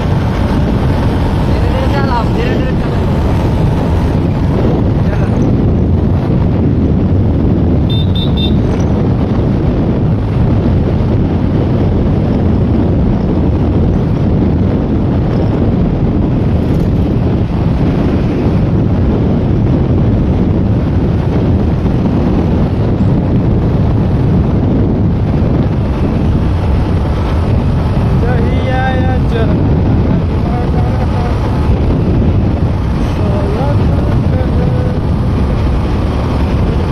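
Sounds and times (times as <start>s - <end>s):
motorbike engine: 0.0s - 36.9s
wind buffeting microphone: 0.0s - 36.9s.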